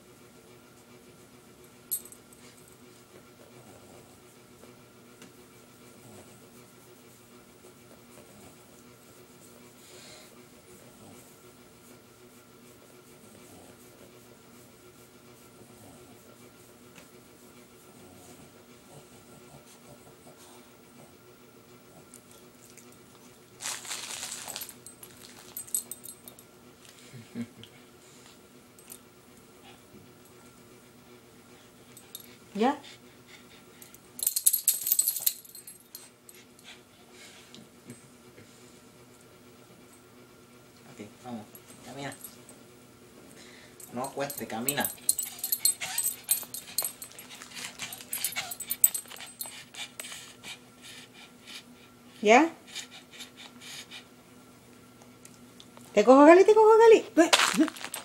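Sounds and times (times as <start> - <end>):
dog rustling on carpet: 23.6 - 25.6, 57.3 - 58.0
light metallic jingles: 34.2 - 36.0, 43.8 - 49.6.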